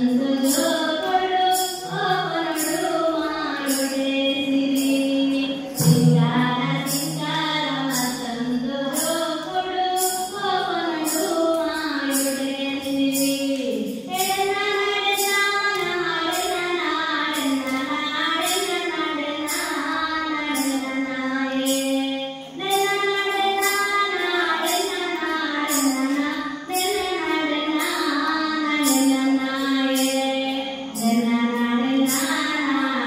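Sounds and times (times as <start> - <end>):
percussion beat: 0.0 - 33.0
woman singing: 0.0 - 33.0.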